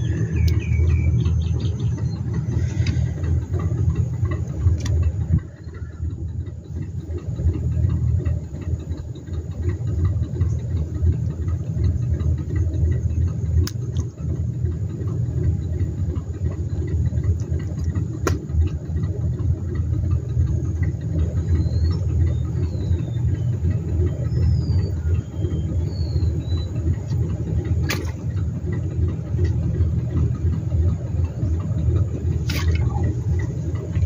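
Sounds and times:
faint bird chirps: 0:00.0 - 0:02.6, 0:21.4 - 0:27.0
steady low rumble: 0:00.0 - 0:34.0.

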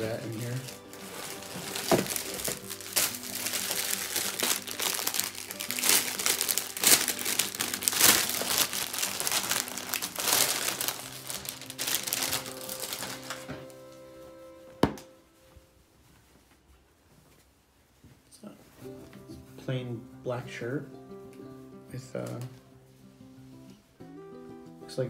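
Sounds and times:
plastic bag crinkling: 0:00.0 - 0:13.9
soft background music: 0:00.0 - 0:16.4, 0:18.3 - 0:25.0.

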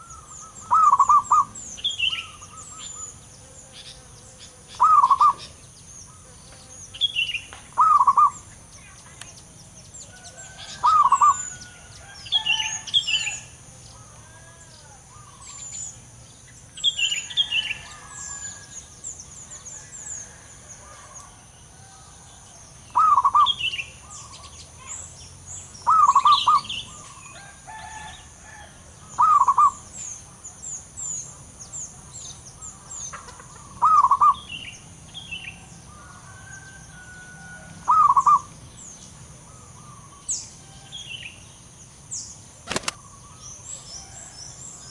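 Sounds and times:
dove cooing: 0:00.0 - 0:03.1, 0:04.8 - 0:05.5, 0:07.8 - 0:08.4, 0:10.6 - 0:11.6, 0:23.0 - 0:24.4, 0:25.8 - 0:27.2, 0:29.0 - 0:29.8, 0:33.2 - 0:34.4, 0:37.8 - 0:38.5
small birds chirping: 0:00.0 - 0:21.4, 0:22.2 - 0:44.9.

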